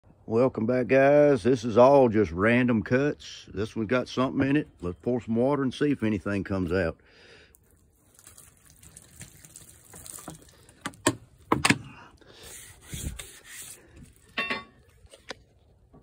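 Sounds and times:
water pouring and splashing on wood: 0:07.4 - 0:15.8.

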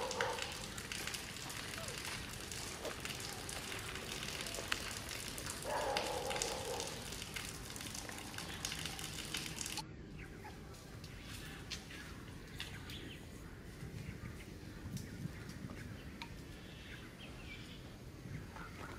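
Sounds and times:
dry leaves crackling and rustling: 0:00.0 - 0:09.8, 0:10.7 - 0:14.6
dull background noise: 0:00.0 - 0:18.9.

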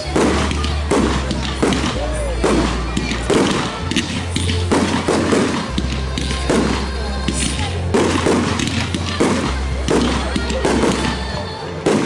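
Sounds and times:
fireworks crackling: 0:00.0 - 0:12.0
fireworks launching and bursting: 0:00.0 - 0:12.0
music with steady bass line: 0:00.0 - 0:12.0.

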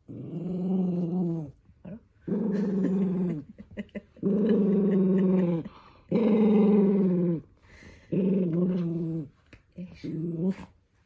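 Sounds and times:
dog growling: 0:00.0 - 0:03.6, 0:04.2 - 0:07.5.

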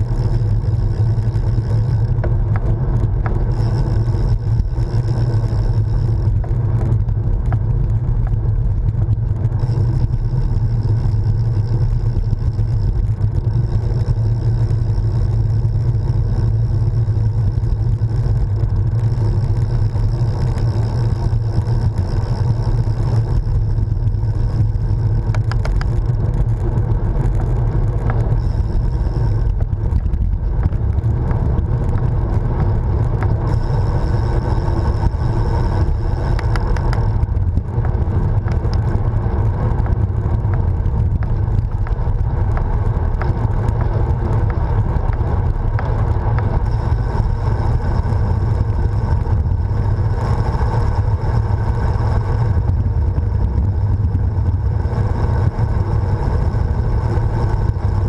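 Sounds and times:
tyre rumble on tarmac: 0:00.0 - 0:58.0
faint high whine: 0:31.4 - 0:40.5, 0:43.1 - 0:58.0.

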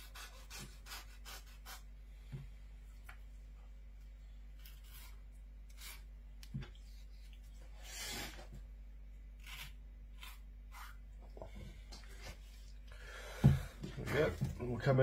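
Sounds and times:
knife scraping through fish skin: 0:04.6 - 0:06.1, 0:09.4 - 0:11.0.

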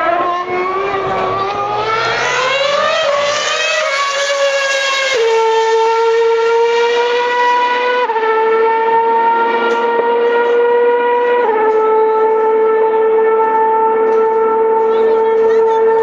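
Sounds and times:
racing car engine wailing: 0:00.0 - 0:16.0.

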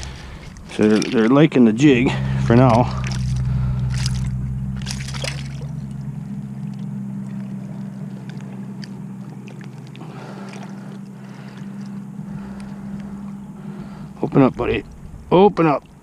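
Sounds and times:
small water splashes: 0:00.0 - 0:05.8, 0:07.8 - 0:14.0
steady low hum: 0:00.0 - 0:16.0.

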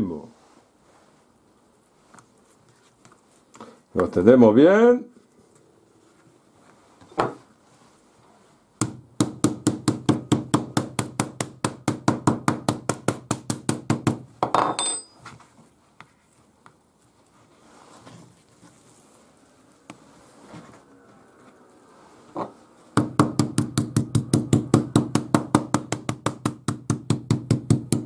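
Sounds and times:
meat mallet pounding: 0:08.8 - 0:14.3, 0:23.0 - 0:28.0
metallic clatter with ring: 0:14.5 - 0:15.3.

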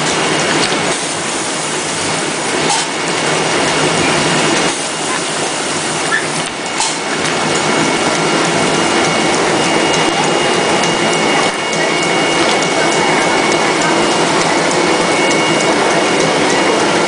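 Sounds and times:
machinery clatter: 0:00.0 - 0:17.0.

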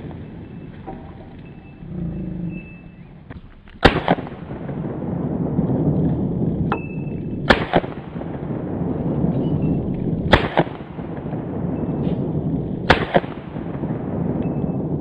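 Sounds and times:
fainter crack: 0:00.0 - 0:14.0
pistol gunshots: 0:03.4 - 0:14.3.

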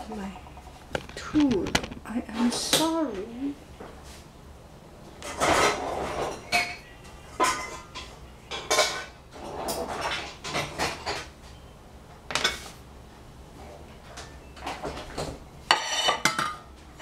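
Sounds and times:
kitchen utensils clattering: 0:05.2 - 0:11.3, 0:14.2 - 0:17.0.

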